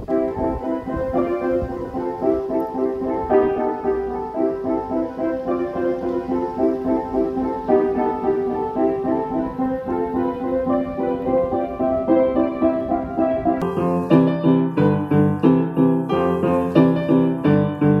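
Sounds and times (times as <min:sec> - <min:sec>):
upright piano playing: 0:00.0 - 0:18.0.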